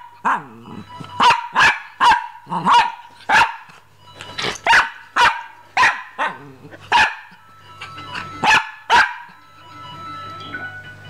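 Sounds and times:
dog barking: 0:01.2 - 0:03.8, 0:04.6 - 0:07.4, 0:08.4 - 0:09.4.

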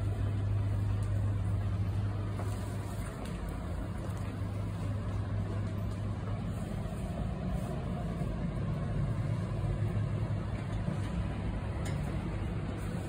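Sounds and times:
low mechanical hum: 0:00.0 - 0:13.0.

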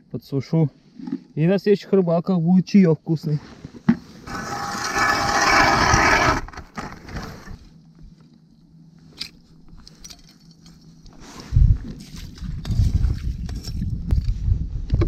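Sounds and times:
metal scraping on ice: 0:04.2 - 0:07.6.

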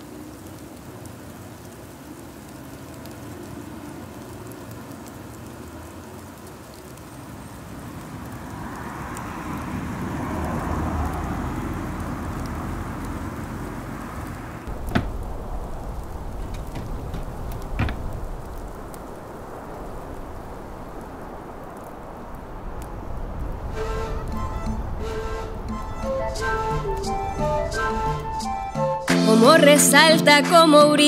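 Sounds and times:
rain pattering: 0:00.0 - 0:31.0
sharp crack: 0:10.4 - 0:29.3
low rumble: 0:14.7 - 0:29.0.

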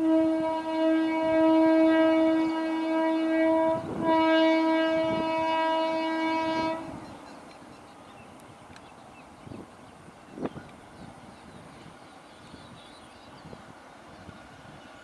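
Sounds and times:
locomotive horn blasts: 0:00.0 - 0:07.1.

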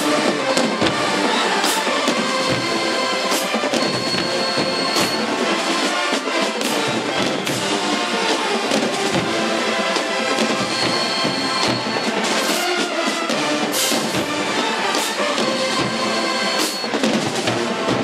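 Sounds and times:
driving drum beat: 0:00.0 - 0:18.0
marching band brass: 0:00.0 - 0:18.0.

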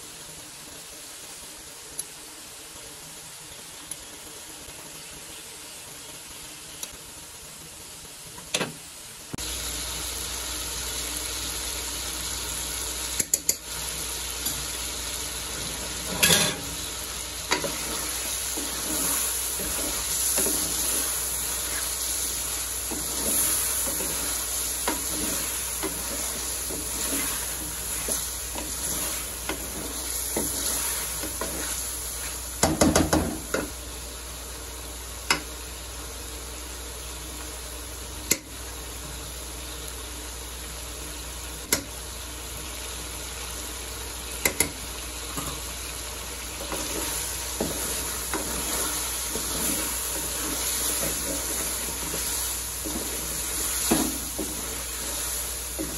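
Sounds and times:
food sizzling in oil: 0:00.0 - 0:55.9
wooden spatula scraping and knocking pan: 0:22.9 - 0:33.7, 0:46.6 - 0:55.9.

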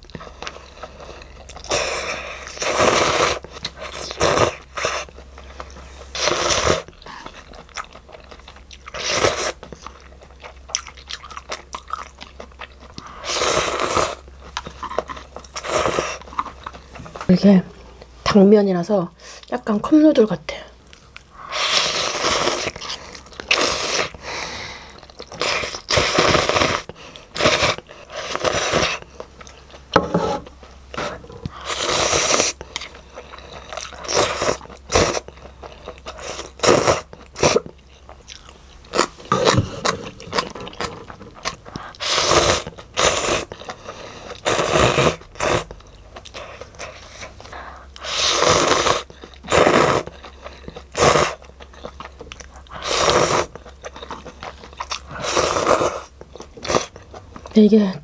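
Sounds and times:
chewing: 0:00.0 - 0:17.3, 0:20.8 - 0:57.6
slurping noodles: 0:00.8 - 0:05.1, 0:06.0 - 0:06.9, 0:08.9 - 0:09.6, 0:13.2 - 0:14.2, 0:14.8 - 0:16.3, 0:21.4 - 0:24.4, 0:25.3 - 0:29.0, 0:31.0 - 0:32.8, 0:33.6 - 0:35.3, 0:36.1 - 0:37.6, 0:41.9 - 0:45.7, 0:48.0 - 0:51.4, 0:52.7 - 0:53.6, 0:54.9 - 0:56.1.

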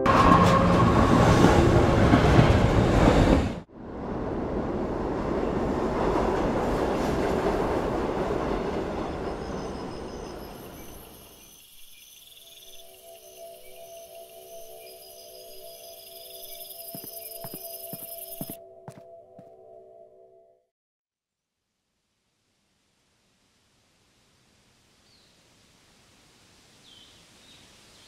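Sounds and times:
passenger train rumbling on rails: 0:00.0 - 0:11.6.

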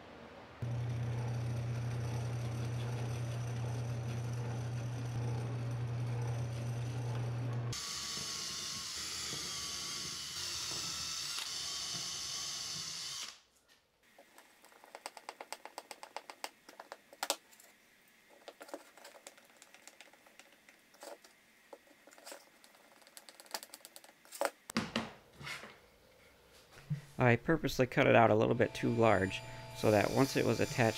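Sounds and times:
drill press cutting plastic: 0:00.6 - 0:13.4, 0:28.6 - 0:30.9.

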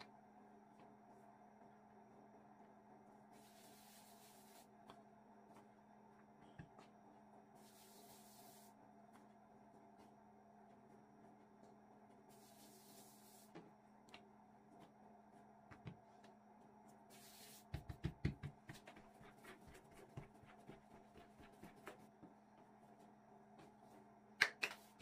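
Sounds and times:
faint steady hum: 0:00.0 - 0:25.0
hands thumping dough: 0:17.7 - 0:22.4.

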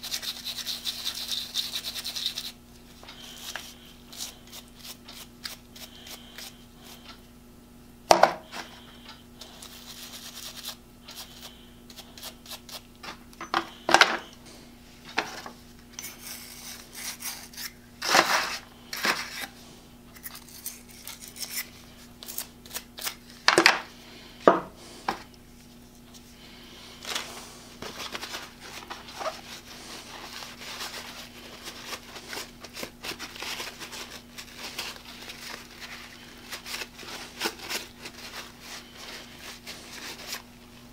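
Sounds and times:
faint steady hum: 0:00.0 - 0:40.9
paper towel rustling: 0:25.5 - 0:40.9.

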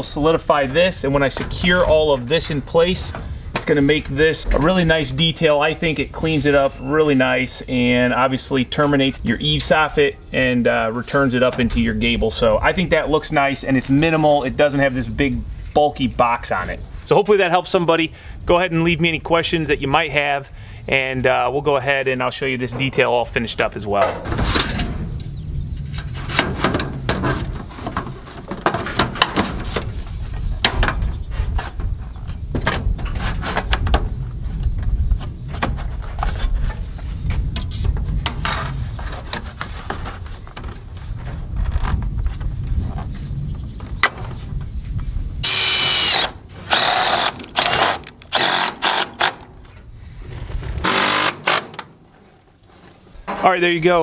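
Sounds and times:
steady low rumble: 0:29.5 - 0:46.9
cordless drill driving screws: 0:45.4 - 0:49.4, 0:50.8 - 0:51.7.

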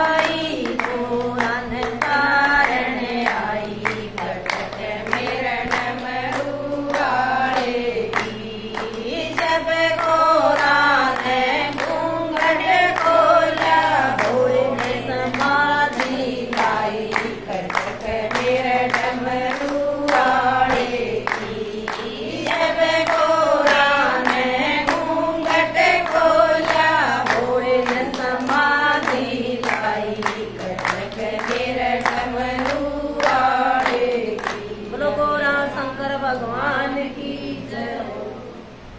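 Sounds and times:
hands clapping on a beat: 0:00.0 - 0:35.0
women singing together: 0:00.0 - 0:38.9.

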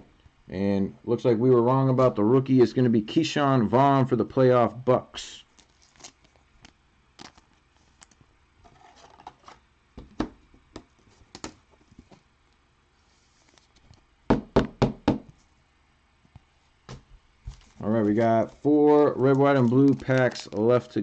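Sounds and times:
soft rustle of cards: 0:05.2 - 0:09.6, 0:10.9 - 0:14.1, 0:15.3 - 0:21.0.

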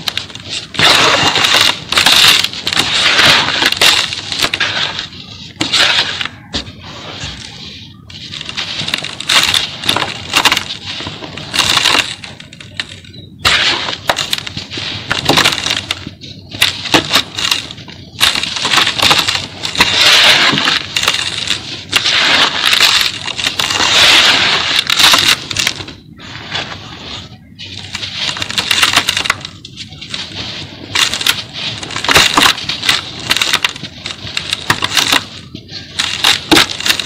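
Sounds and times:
sand chunks crushed by hands: 0:00.0 - 0:37.0.

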